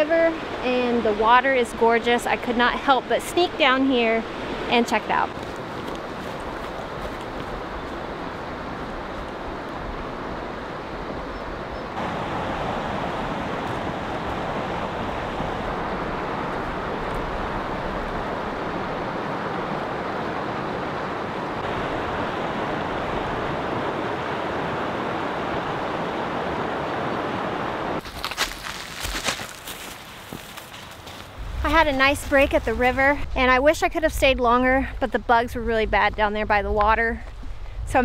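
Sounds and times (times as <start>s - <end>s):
river rapids rushing: 12.0s - 28.0s.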